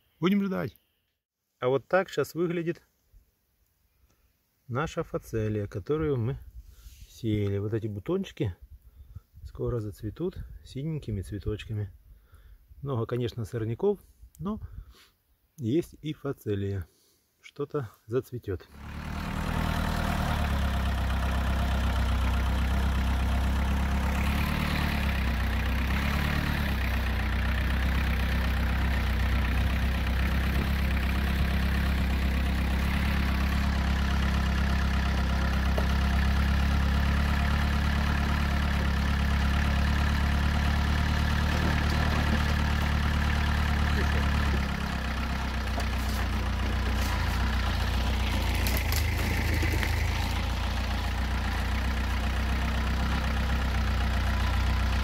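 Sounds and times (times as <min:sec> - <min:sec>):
quad bike engine running: 0:18.7 - 0:55.0.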